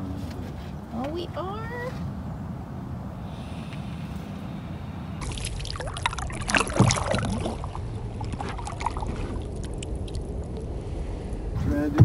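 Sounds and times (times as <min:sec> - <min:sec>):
oars splashing in water: 0:05.2 - 0:10.7.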